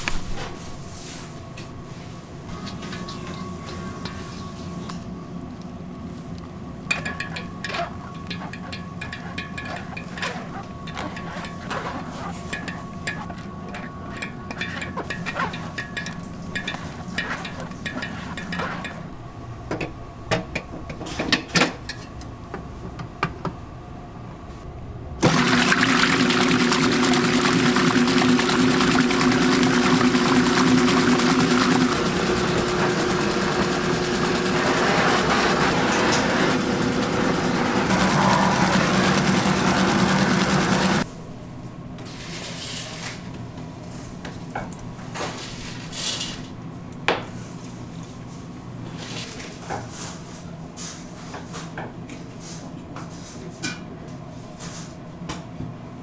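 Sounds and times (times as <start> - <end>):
spatula scraping and tapping: 6.9 - 19.0
stand mixer running: 25.2 - 41.0.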